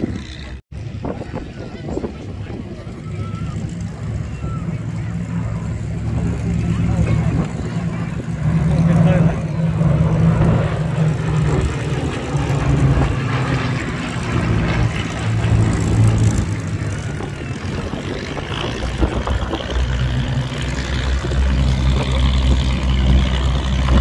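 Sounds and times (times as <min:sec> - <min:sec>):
propeller aircraft droning overhead: 0:00.0 - 0:24.0.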